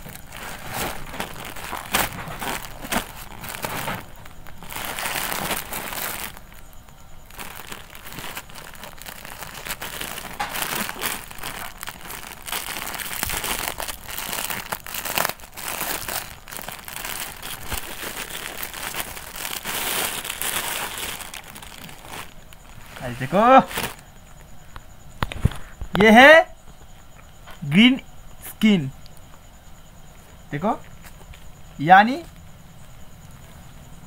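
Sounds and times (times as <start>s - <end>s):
plastic packaging crinkling: 0.0s - 24.0s.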